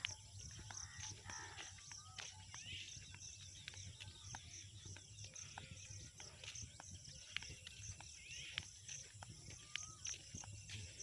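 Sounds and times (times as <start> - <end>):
bird calls: 0.0 - 11.0
footsteps on dirt road: 0.0 - 11.0.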